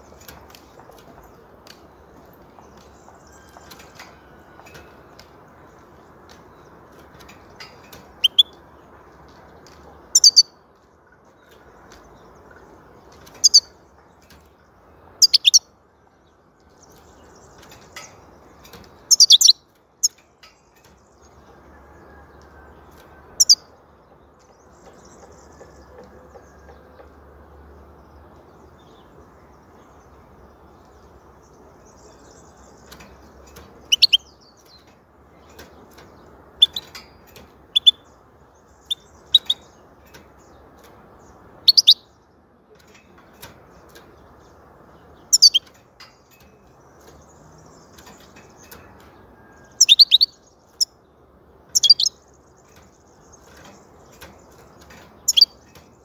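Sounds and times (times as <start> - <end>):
finch chirping: 7.5 - 8.6, 10.1 - 10.6, 13.2 - 13.8, 15.1 - 15.7, 16.9 - 20.2, 23.3 - 23.8, 31.5 - 40.6, 41.4 - 42.1, 45.0 - 48.8, 49.6 - 51.0, 51.6 - 56.0.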